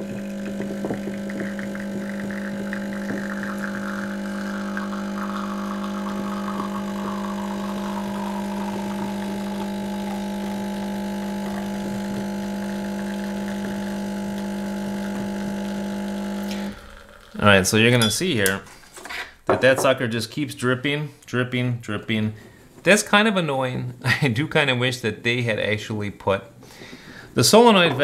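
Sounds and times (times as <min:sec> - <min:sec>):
espresso machine pump humming: 0:00.0 - 0:17.4.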